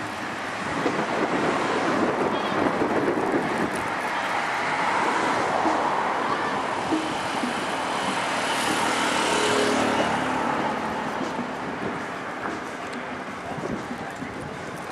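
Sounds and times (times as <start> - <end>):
urban traffic noise: 0.0 - 14.9.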